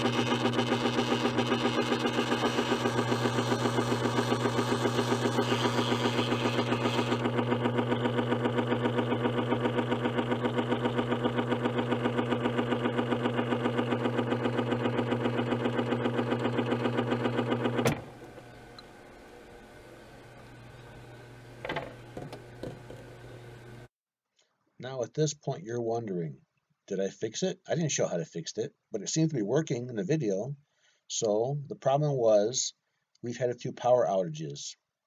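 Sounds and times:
water inlet valve buzzing: 0.0s - 23.9s.

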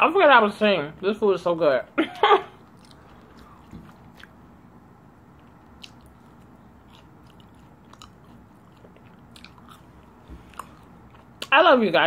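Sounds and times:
chewing: 2.6s - 4.4s, 5.3s - 11.6s.

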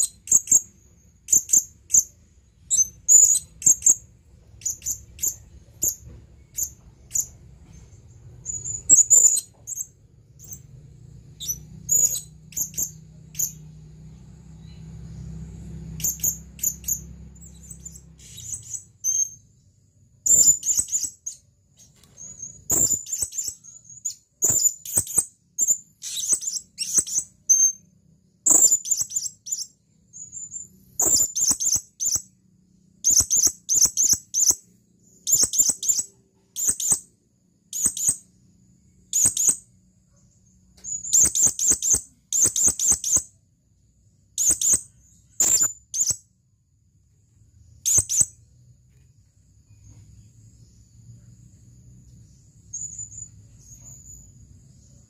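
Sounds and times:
parrot high-pitched chirps: 0.0s - 7.4s, 8.4s - 10.7s, 11.4s - 13.7s, 15.8s - 19.4s, 20.2s - 21.4s, 22.2s - 32.4s, 33.0s - 38.4s, 39.0s - 43.3s, 44.4s - 46.3s, 47.8s - 48.4s.

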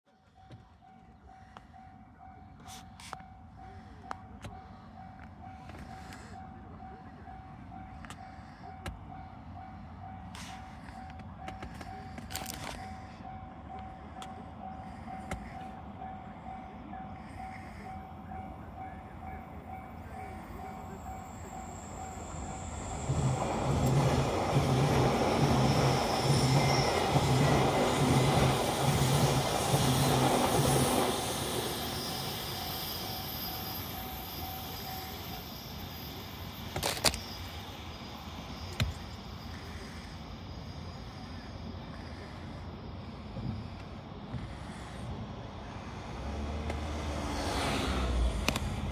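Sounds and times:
electric train passing: 0.2s - 48.9s
train wheel clatter: 22.8s - 35.4s.

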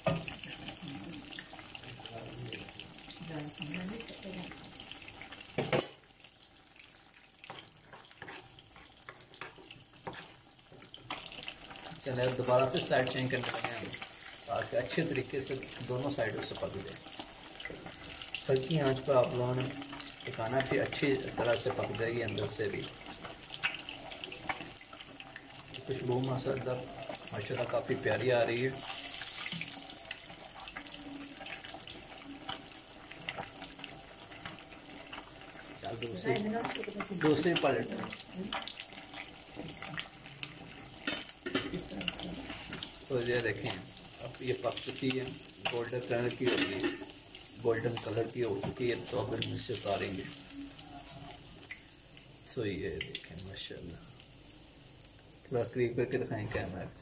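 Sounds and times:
fish sizzling in oil: 0.0s - 57.0s
oil crackling and popping: 0.0s - 57.0s.

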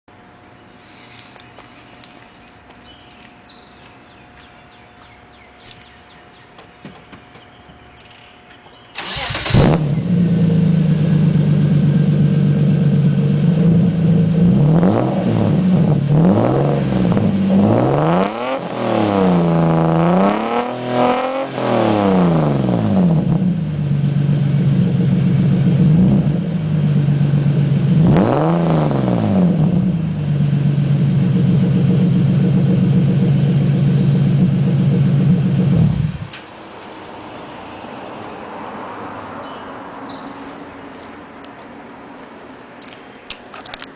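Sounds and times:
car engine idling and revving: 9.0s - 43.9s.

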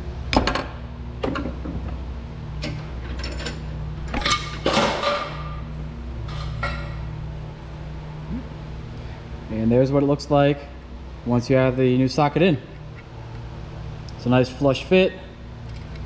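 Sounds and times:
metal tools clinking and knocking: 2.6s - 7.0s.

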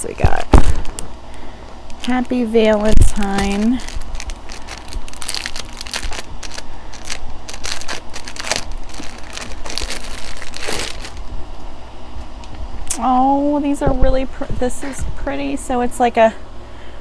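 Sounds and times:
packaging crinkling: 0.7s - 11.3s.

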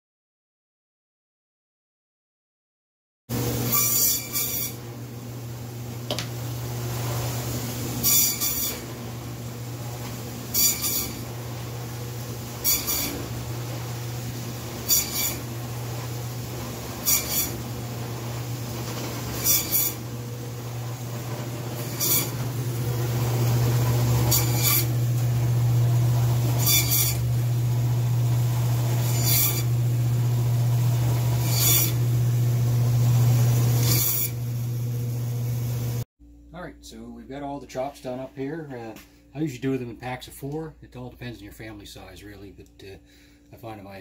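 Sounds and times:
band saw humming: 3.3s - 36.0s
saw blade rasping through bone: 8.1s - 8.9s, 10.5s - 11.3s, 12.4s - 13.4s, 14.7s - 15.6s, 16.4s - 17.7s, 18.8s - 20.0s, 21.6s - 22.6s, 24.2s - 24.9s, 26.6s - 27.3s, 29.0s - 29.7s, 31.4s - 32.0s.

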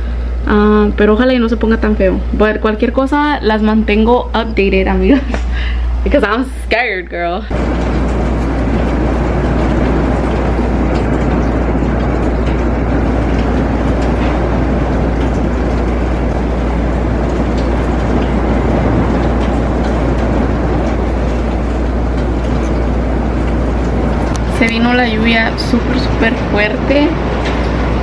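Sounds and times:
low rumble: 0.0s - 28.0s
heavy rain downpour: 7.5s - 28.0s.

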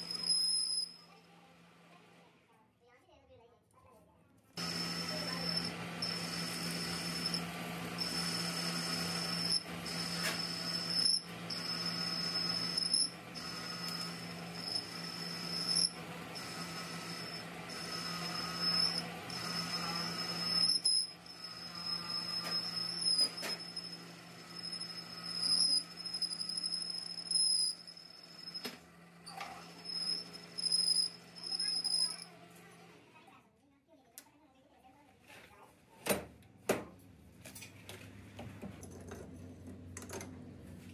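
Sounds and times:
high-pitched cutting whine: 0.0s - 1.0s, 4.6s - 32.3s
lathe motor hum: 4.6s - 32.2s.

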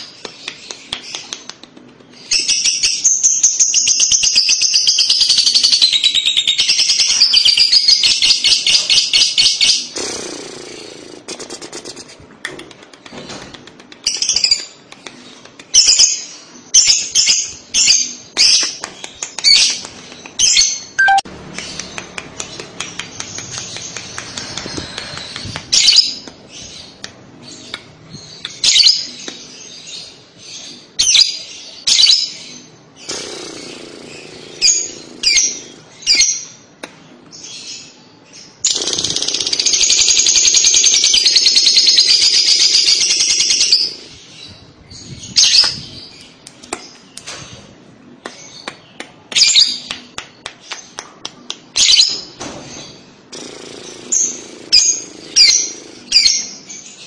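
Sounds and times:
lovebird chirping: 20.4s - 27.0s.

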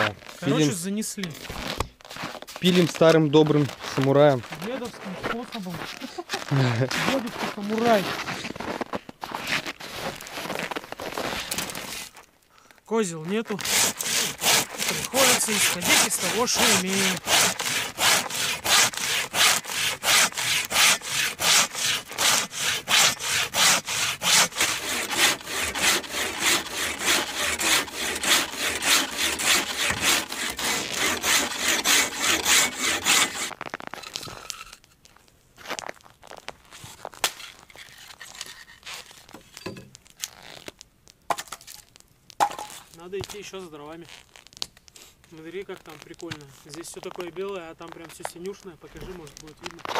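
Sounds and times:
hand saw cutting log: 13.5s - 33.6s.

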